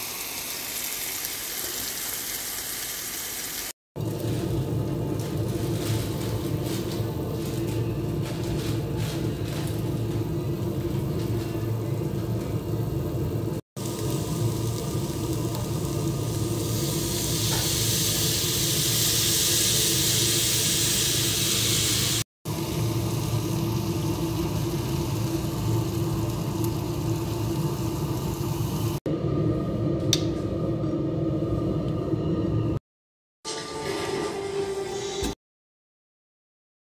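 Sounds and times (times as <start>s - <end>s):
chicken frying in a pan: 0.0s - 7.2s, 13.4s - 29.0s.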